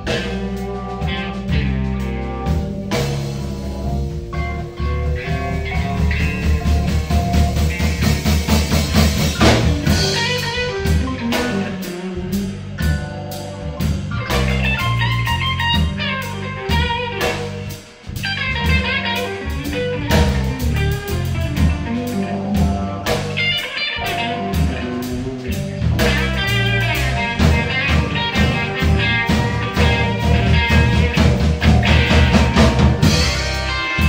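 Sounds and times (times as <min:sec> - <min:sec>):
drum kit: 0:00.0 - 0:34.0
electric guitar: 0:00.0 - 0:34.0
electric keyboard: 0:00.0 - 0:34.0.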